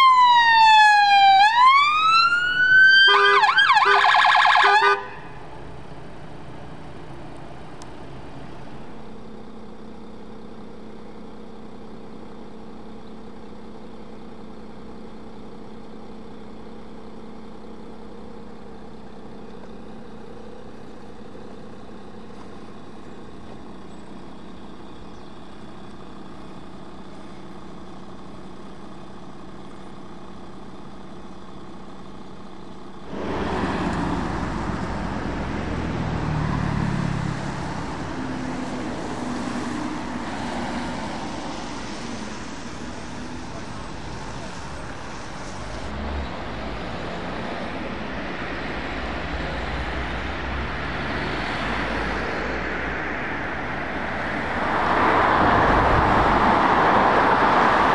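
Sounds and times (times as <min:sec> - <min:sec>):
electronic siren wailing and warbling: 0:00.0 - 0:05.2
road noise: 0:00.0 - 0:57.9
vehicle engine hum: 0:00.0 - 0:57.9.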